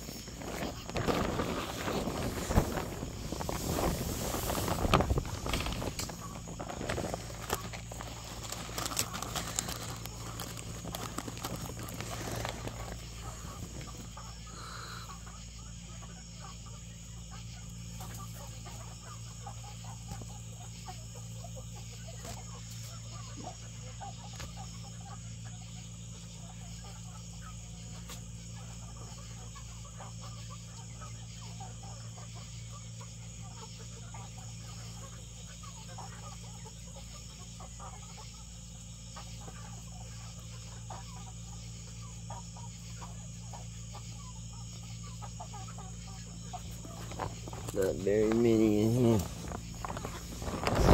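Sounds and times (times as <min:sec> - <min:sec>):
footsteps through grass: 0:00.0 - 0:13.4
low hum: 0:00.0 - 0:15.1.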